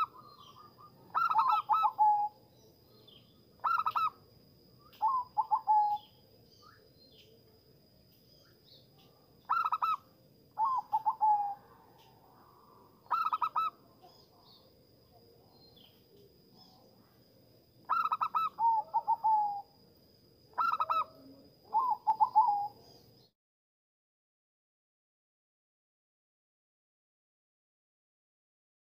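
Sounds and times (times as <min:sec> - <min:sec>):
dove singing: 0:00.0 - 0:07.4, 0:08.2 - 0:14.7, 0:17.8 - 0:19.8, 0:20.5 - 0:23.3.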